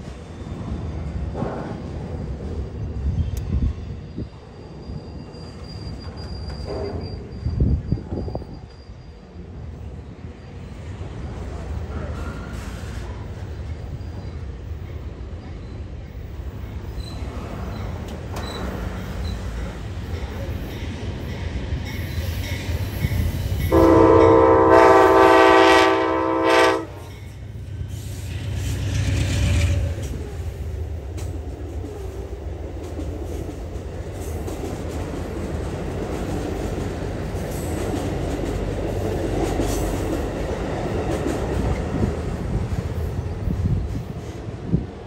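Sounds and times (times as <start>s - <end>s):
train wheel and rail noise: 0.0s - 45.0s
locomotive air horn: 23.7s - 27.2s.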